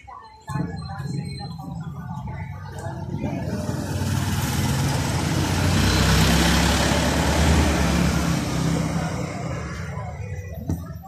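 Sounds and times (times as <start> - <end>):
motor vehicle passing: 2.8 - 10.6.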